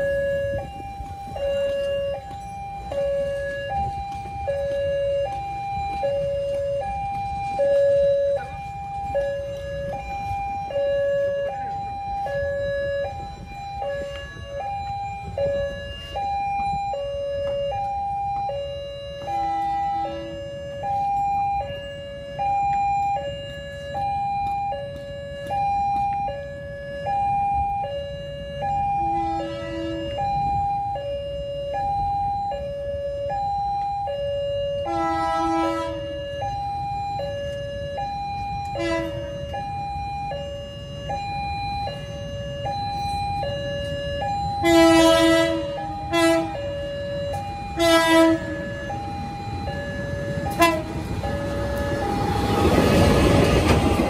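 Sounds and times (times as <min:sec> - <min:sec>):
level crossing two-tone alarm: 0:00.0 - 0:54.0
road traffic rumble: 0:00.0 - 0:54.0
short horn blasts: 0:34.9 - 0:36.1, 0:44.6 - 0:46.6, 0:47.8 - 0:48.6, 0:50.5 - 0:50.9.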